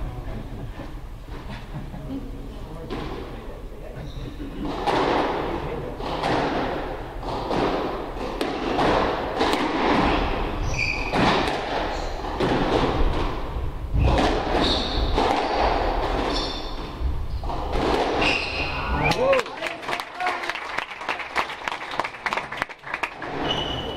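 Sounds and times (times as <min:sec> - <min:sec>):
racket striking ball: 0:06.0 - 0:10.4, 0:11.0 - 0:13.4, 0:14.0 - 0:16.4, 0:17.5 - 0:18.2
short high squeaks: 0:10.6 - 0:11.2, 0:16.3 - 0:17.4, 0:18.2 - 0:19.0, 0:23.4 - 0:23.9.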